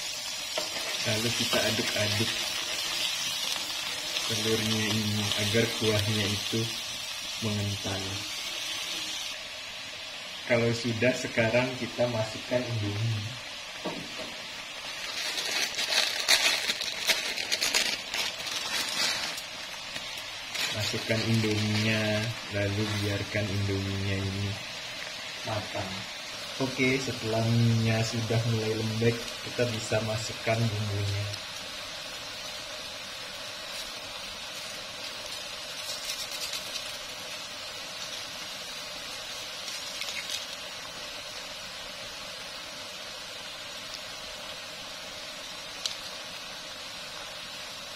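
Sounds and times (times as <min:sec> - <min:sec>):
crackling bursts: 0:00.0 - 0:09.5, 0:14.0 - 0:47.9
noodles bubbling in broth: 0:00.0 - 0:47.9
broth bubbling and crackling: 0:39.0 - 0:41.3.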